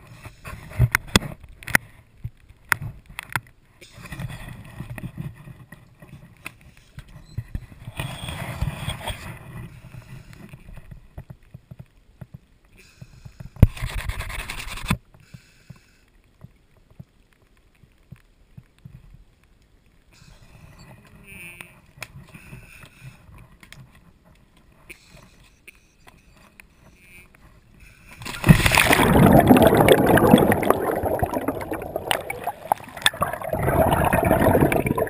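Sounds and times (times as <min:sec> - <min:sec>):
faint ticks: 0:00.3 - 0:28.3
camera housing rubbing and scraping: 0:13.6 - 0:15.0.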